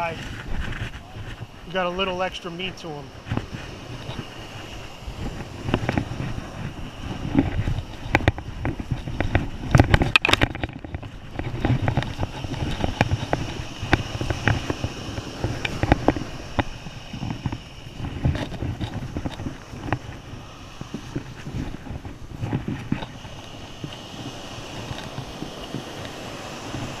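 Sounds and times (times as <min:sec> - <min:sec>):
wind buffeting microphone: 0:00.0 - 0:27.0
close knocks and scuffs on sand: 0:11.0 - 0:27.0.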